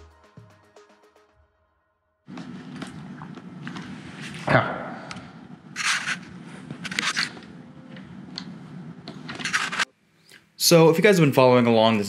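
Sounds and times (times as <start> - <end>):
steady low hum: 2.3 - 10.6.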